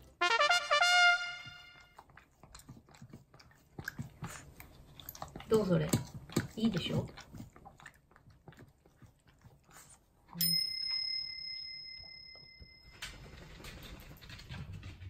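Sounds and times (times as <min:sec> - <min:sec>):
dog eating from metal bowl: 0:01.9 - 0:11.4
bell-like metallic ring: 0:10.4 - 0:13.1.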